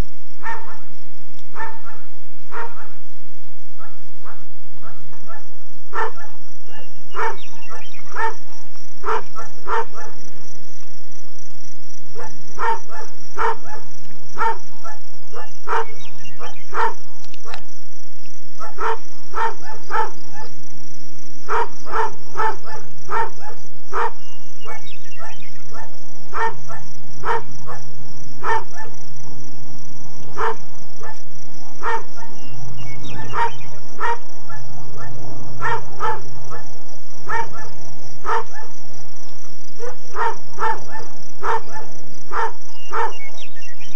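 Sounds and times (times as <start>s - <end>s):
low hum: 0.0s - 43.9s
dog barking: 0.4s - 0.9s, 1.5s - 3.0s, 3.8s - 8.4s, 9.0s - 10.2s, 12.2s - 17.0s, 18.6s - 20.5s, 21.5s - 27.8s, 28.4s - 29.0s, 30.4s - 31.2s, 31.8s - 32.4s, 33.2s - 36.6s, 37.3s - 38.7s, 39.8s - 43.3s.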